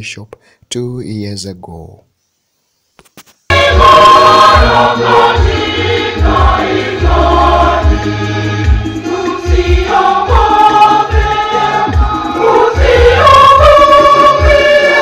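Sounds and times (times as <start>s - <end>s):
choir singing a hymn: 3.5s - 15.0s.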